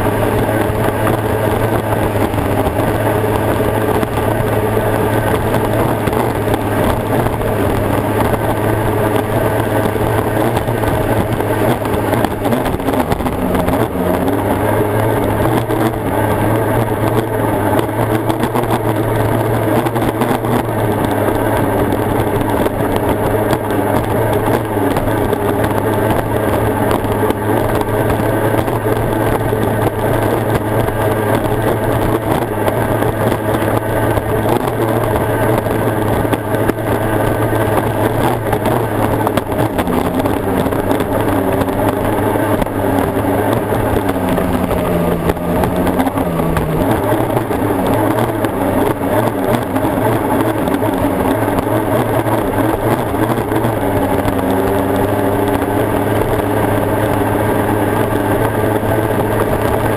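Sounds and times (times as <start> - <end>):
racing outboard engine running: 0.0 - 59.9.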